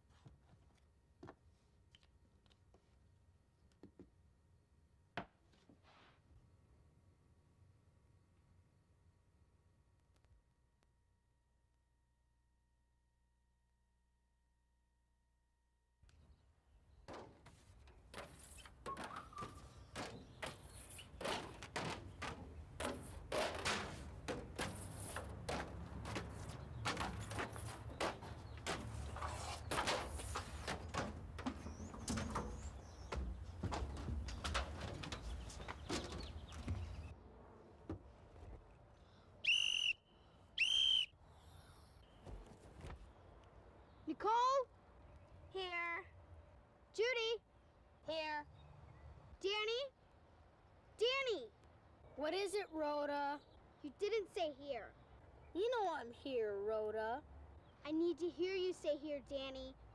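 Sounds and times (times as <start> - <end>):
footsteps on concrete: 18.2 - 37.1
whistle blasts: 39.4 - 41.2.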